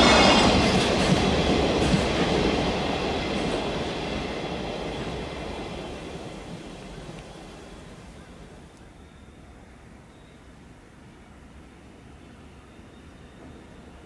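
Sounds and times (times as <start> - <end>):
freight train wheels on rails: 0.0 - 8.9.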